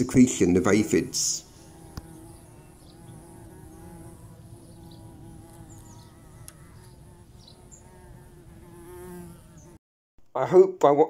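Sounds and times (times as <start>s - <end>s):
bumblebees buzzing: 0.7s - 9.8s
faint bird chirps: 1.5s - 8.1s.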